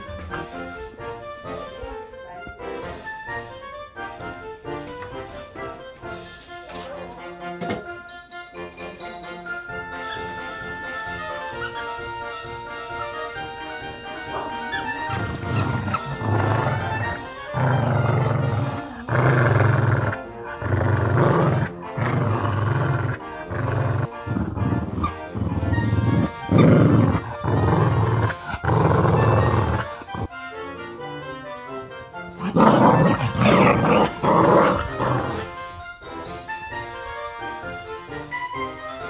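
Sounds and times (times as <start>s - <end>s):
background music with steady beat: 0.0s - 29.4s
dog growling in play: 14.2s - 30.3s, 32.3s - 35.7s
dog chewing plush toy: 14.3s - 30.3s, 32.4s - 35.5s.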